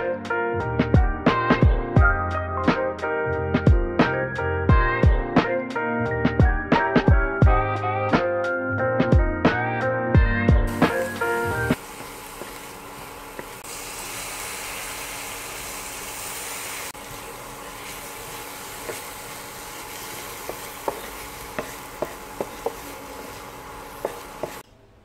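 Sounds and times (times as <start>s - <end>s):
onion sizzling in a frying pan: 10.7s - 24.6s
wooden spatula tapping a pan: 18.8s - 19.1s, 20.3s - 23.4s, 24.0s - 24.6s.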